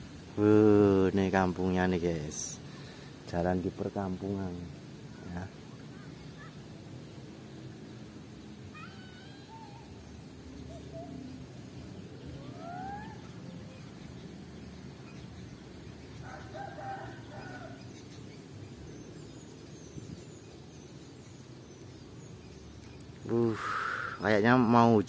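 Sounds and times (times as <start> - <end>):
low outdoor rumble: 0.0 - 23.6
rooster crowing faintly: 16.2 - 18.0.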